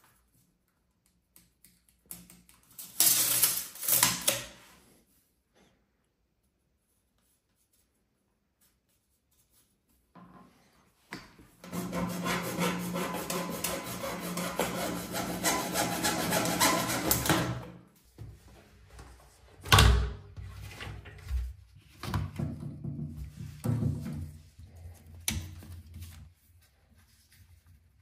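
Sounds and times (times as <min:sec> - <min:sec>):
hacksaw cutting plastic: 0:11.7 - 0:17.6.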